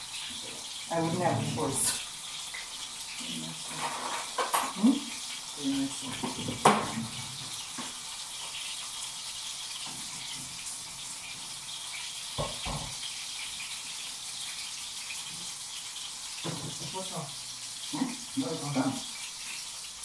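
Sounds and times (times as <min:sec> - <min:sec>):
tap water running: 0:00.0 - 0:20.0
pots and utensils knocking: 0:03.7 - 0:04.8, 0:06.1 - 0:07.6, 0:12.4 - 0:13.0, 0:16.4 - 0:16.9.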